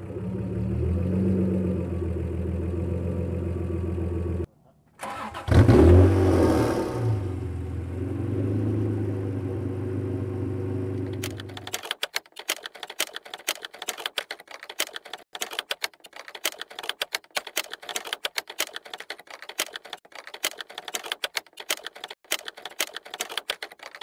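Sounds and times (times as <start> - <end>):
typewriter typing clicks: 11.0 - 24.0.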